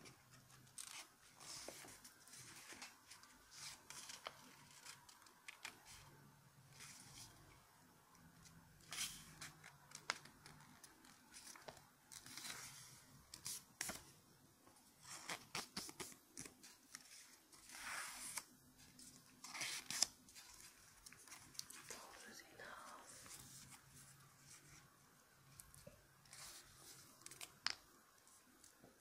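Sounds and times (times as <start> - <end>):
paper rustling and crinkling: 0.0 - 6.0, 8.8 - 14.1, 15.0 - 22.2.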